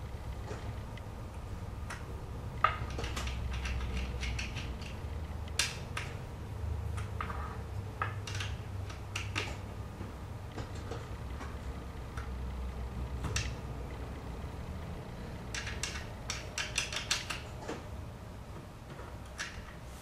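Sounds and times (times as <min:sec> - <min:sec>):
steady low hum: 0:00.0 - 0:20.0
allen key clicking on bolt: 0:15.5 - 0:17.8.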